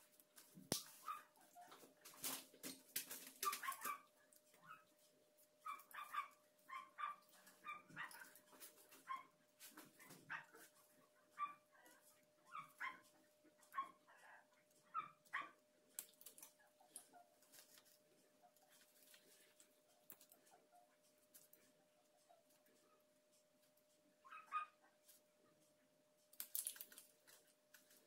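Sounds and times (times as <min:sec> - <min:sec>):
dog whimpering and yipping: 0:03.4 - 0:04.0.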